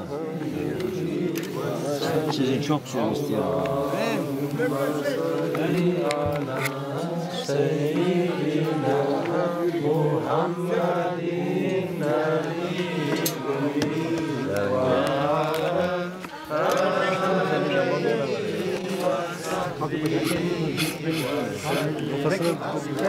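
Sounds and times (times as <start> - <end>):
crowd of men chanting: 0.0 - 23.0.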